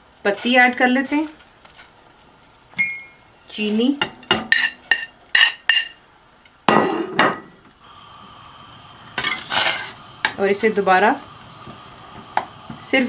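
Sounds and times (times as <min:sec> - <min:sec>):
faint hiss: 0:05.7 - 0:13.0.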